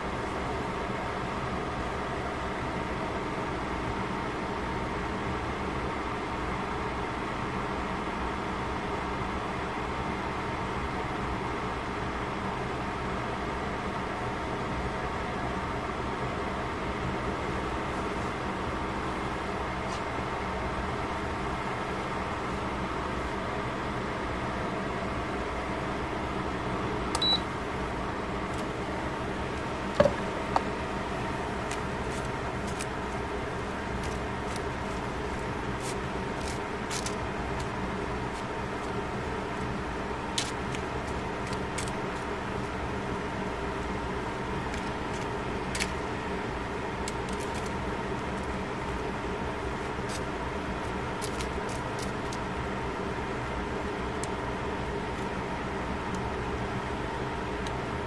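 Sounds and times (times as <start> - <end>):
low hum and rumble: 0.0 - 58.0
click and high beep: 27.2 - 27.4.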